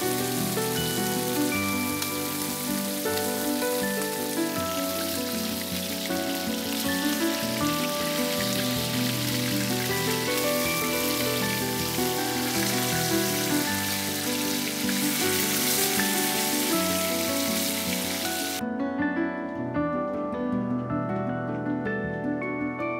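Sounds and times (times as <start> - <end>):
steaks sizzling in a frying pan: 0.0 - 18.6
soft background music: 0.0 - 22.9.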